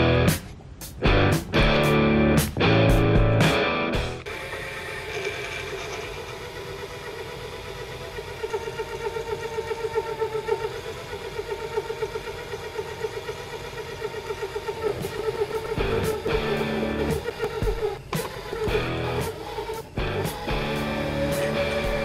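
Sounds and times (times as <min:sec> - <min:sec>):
lathe motor hum: 0:04.2 - 0:22.0
fast even pulsing: 0:06.6 - 0:22.0.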